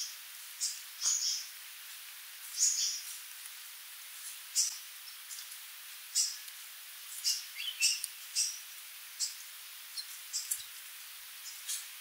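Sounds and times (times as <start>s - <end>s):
bird high sharp calls: 7.2s - 8.6s.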